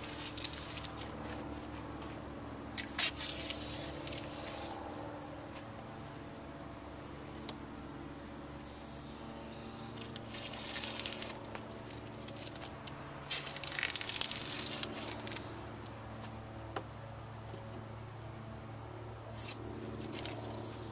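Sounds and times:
tape ripping off: 0:02.8 - 0:04.7, 0:10.0 - 0:15.5, 0:19.3 - 0:20.6.

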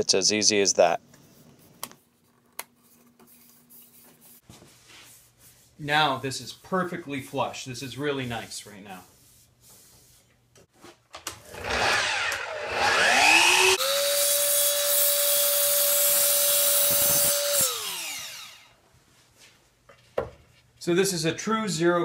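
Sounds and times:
miter saw motor whine: 0:11.5 - 0:18.7.

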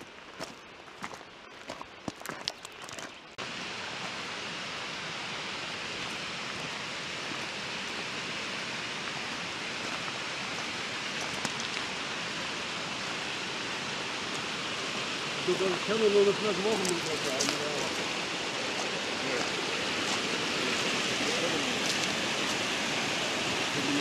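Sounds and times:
footsteps crunching on gravel: 0:00.0 - 0:03.2, 0:09.2 - 0:11.9, 0:16.6 - 0:22.7
mountain stream rushing: 0:00.0 - 0:24.0.

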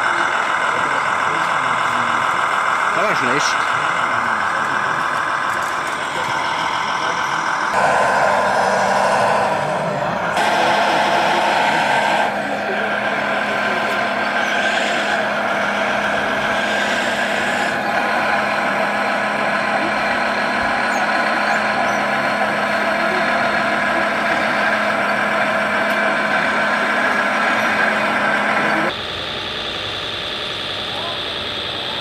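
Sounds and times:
model machine motor whine: 0:05.7 - 0:19.2.

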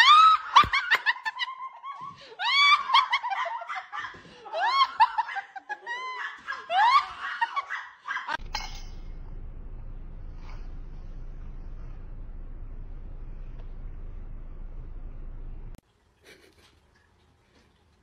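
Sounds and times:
high-pitched laughter: 0:00.0 - 0:08.4.

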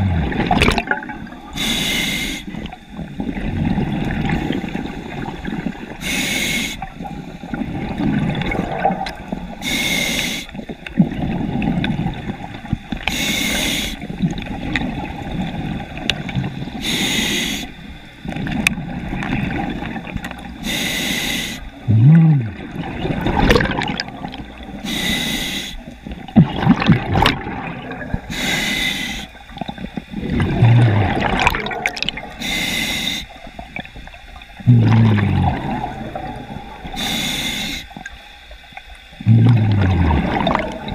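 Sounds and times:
gurgling exhaust bubbles: 0:00.0 - 0:01.6, 0:21.9 - 0:24.7, 0:26.2 - 0:28.3, 0:29.5 - 0:32.4, 0:34.6 - 0:37.0, 0:39.2 - 0:40.9
diver inhaling through regulator: 0:01.4 - 0:02.7, 0:06.0 - 0:07.0, 0:09.6 - 0:10.6, 0:13.1 - 0:14.1, 0:16.8 - 0:17.8, 0:20.6 - 0:22.7, 0:24.7 - 0:26.0, 0:28.2 - 0:29.4, 0:32.2 - 0:33.4, 0:34.7 - 0:38.0.

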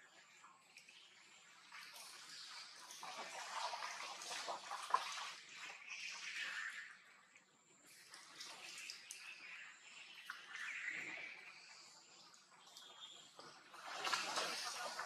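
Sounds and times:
monkeys splashing in water: 0:01.7 - 0:06.9, 0:10.1 - 0:15.0.

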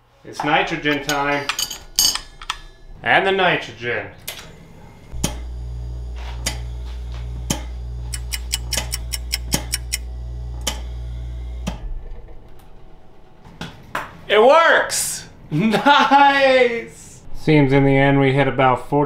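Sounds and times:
steady low hum: 0:00.0 - 0:15.9
sharp clicks: 0:07.5 - 0:10.9.

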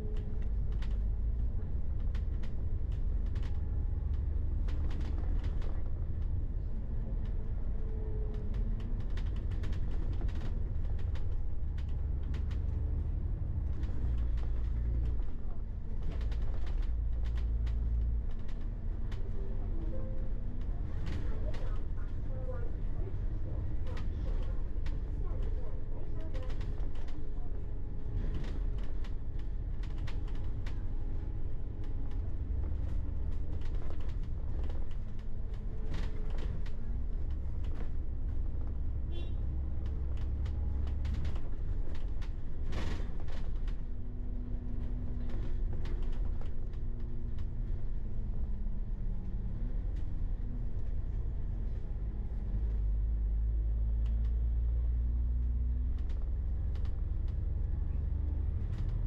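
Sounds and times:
engine low rumble: 0:00.0 - 0:59.0
small clicks and creaking rattles: 0:01.8 - 0:06.5, 0:07.2 - 0:22.6, 0:23.6 - 0:38.8, 0:39.7 - 0:48.5, 0:55.8 - 0:57.7, 0:58.5 - 0:59.0.

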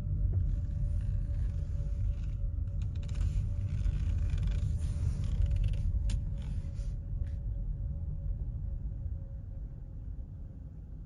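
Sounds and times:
faint steady hum: 0:00.0 - 0:11.0
car driving slowly: 0:00.3 - 0:06.9.

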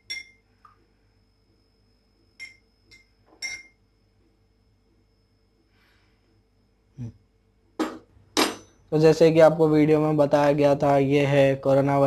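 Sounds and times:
spoon clinking against glass: 0:00.0 - 0:00.4, 0:02.4 - 0:03.8.

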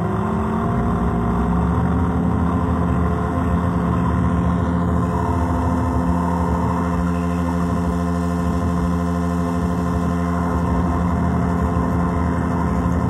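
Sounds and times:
buzzing synth drone: 0:00.0 - 0:13.0.

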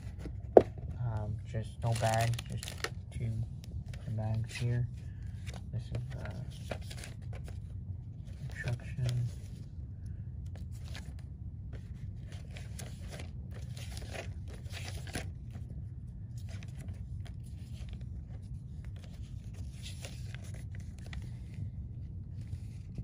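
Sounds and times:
low steady hum: 0:00.0 - 0:23.0
paper pages flipping: 0:01.8 - 0:03.0, 0:05.3 - 0:07.7, 0:10.5 - 0:15.7, 0:16.4 - 0:21.7, 0:22.3 - 0:23.0.

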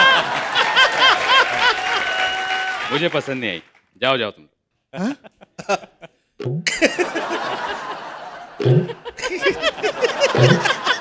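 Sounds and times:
studio audience laughing: 0:00.0 - 0:02.3, 0:05.2 - 0:11.0.

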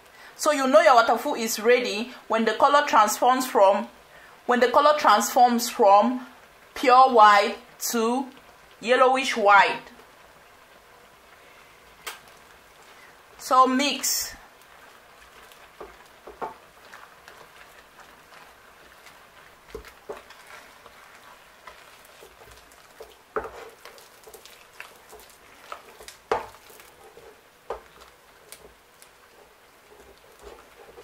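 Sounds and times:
wooden spoon mashing dough in pot: 0:14.5 - 0:31.0.

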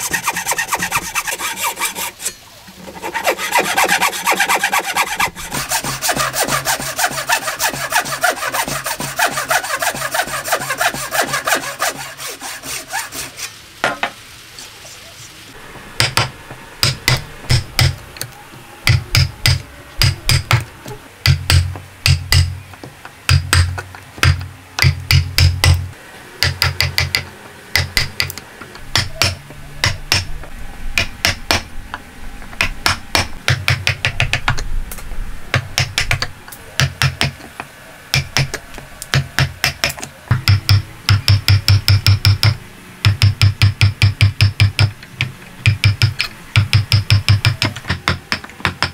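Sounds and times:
hand saw cutting wood: 0:00.0 - 0:13.6
chisel strikes on wood: 0:16.0 - 0:18.0, 0:21.2 - 0:22.6, 0:23.3 - 0:25.8, 0:26.4 - 0:30.3, 0:35.5 - 0:37.5, 0:38.1 - 0:48.9.

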